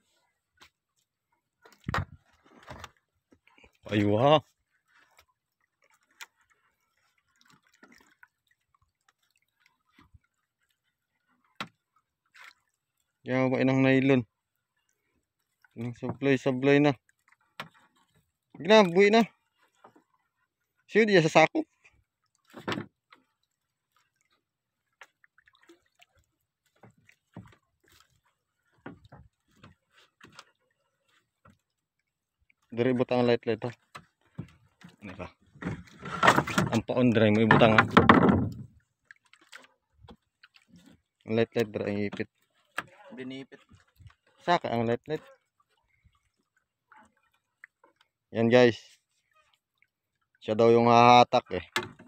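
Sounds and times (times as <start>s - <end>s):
water dripping beside boat: 0.5s - 52.0s
light knocks against boat: 1.7s - 3.0s, 22.5s - 23.0s, 33.9s - 38.7s
water drips: 23.1s - 30.7s.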